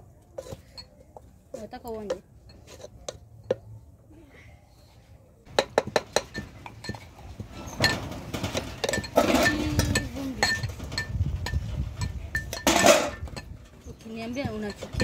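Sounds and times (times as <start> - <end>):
metal spoon clinking in a pot: 8.8 - 13.6.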